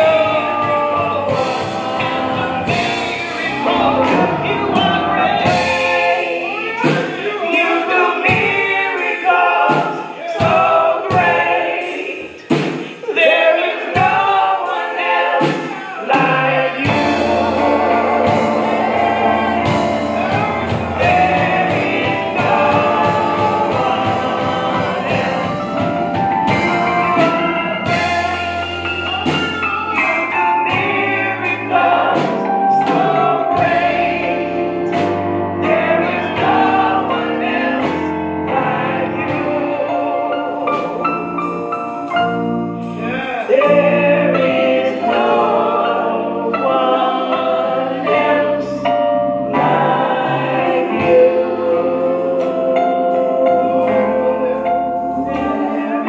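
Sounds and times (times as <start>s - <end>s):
low bass notes: 0.0s - 6.6s, 16.2s - 56.0s
drum strikes: 0.0s - 39.8s
group singing gospel: 0.0s - 56.0s
instrumental backing: 0.0s - 56.0s.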